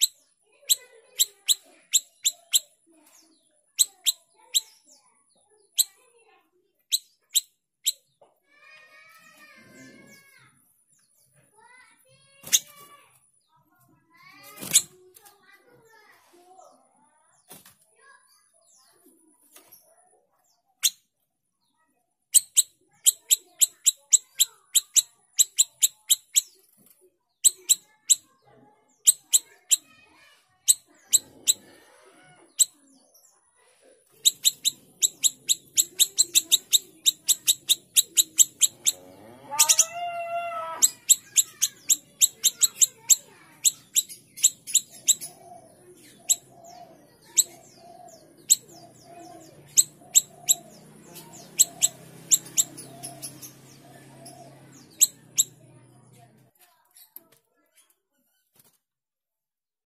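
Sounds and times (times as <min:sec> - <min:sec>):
songbird chipping notes: 0:00.0 - 0:02.7, 0:03.8 - 0:05.1, 0:22.4 - 0:26.7, 0:27.4 - 0:28.3, 0:34.2 - 0:55.7
bird rising and falling call: 0:34.2 - 0:45.4
lower repeated bird call: 0:34.2 - 0:55.6.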